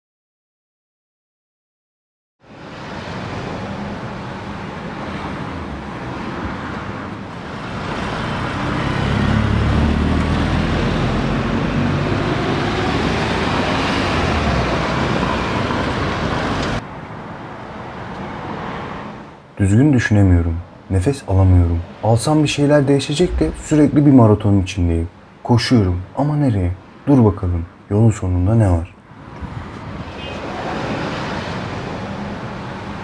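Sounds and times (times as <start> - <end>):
road traffic hum: 2.4 - 33.0
vehicle passing close: 2.6 - 16.8, 22.6 - 24.5.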